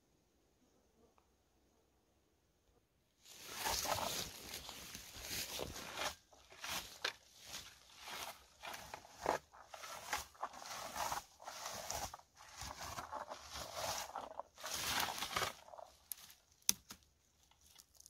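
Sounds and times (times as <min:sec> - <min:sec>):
rake rustling through bushes: 0:03.2 - 0:16.4.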